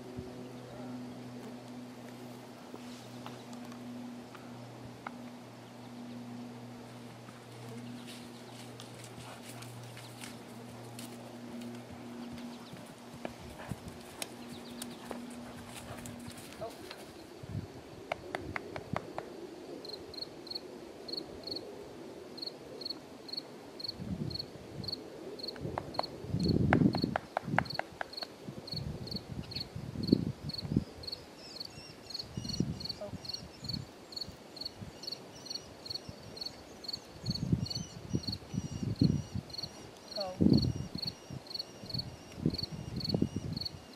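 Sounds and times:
insect chirping: 19.8s - 21.7s, 22.4s - 25.5s, 28.7s - 43.9s.

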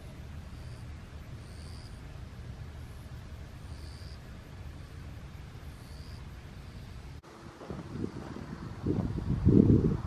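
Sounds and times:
wind buffeting microphone: 7.3s - 10.0s.

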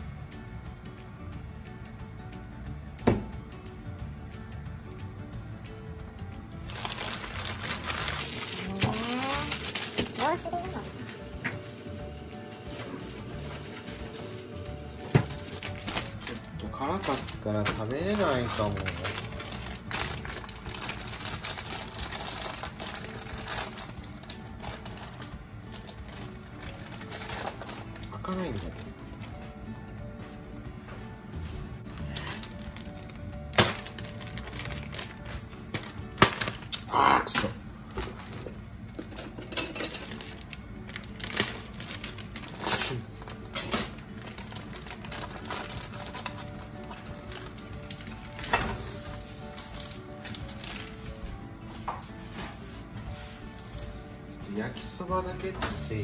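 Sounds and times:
plastic wrapper crinkling: 6.6s - 11.8s, 15.2s - 29.3s, 31.8s - 36.9s, 39.9s - 51.3s.

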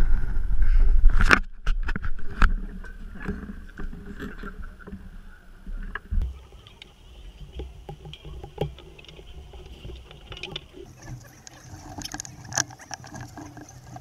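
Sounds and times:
harness rustling: 6.2s - 14.0s.

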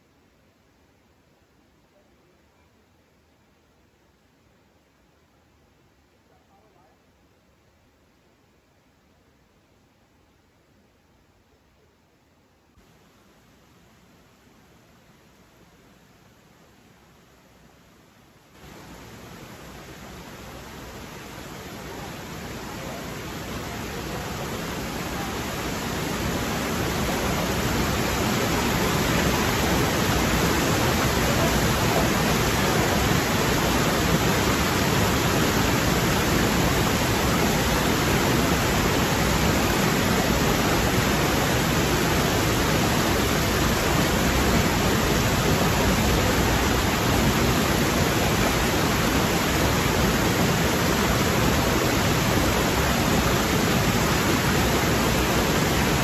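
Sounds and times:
stream rushing over boulders: 18.6s - 56.0s.

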